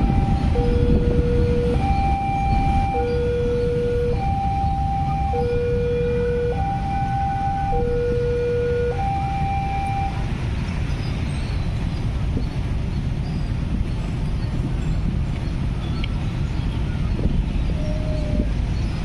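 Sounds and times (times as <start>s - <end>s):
level crossing alarm two tones: 0.0s - 10.2s
motorcycle engines: 0.0s - 19.0s.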